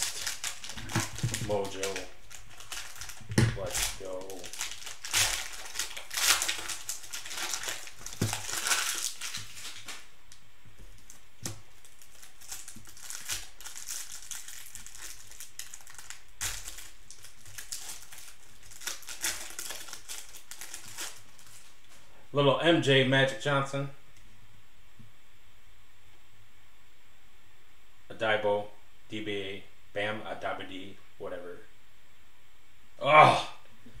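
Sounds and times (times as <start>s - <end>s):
plastic wrapper crinkling: 0.0s - 10.1s, 10.8s - 22.0s.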